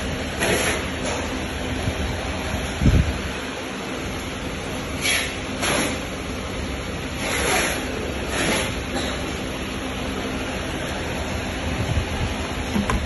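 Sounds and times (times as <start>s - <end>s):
fan rushing: 0.0s - 13.0s.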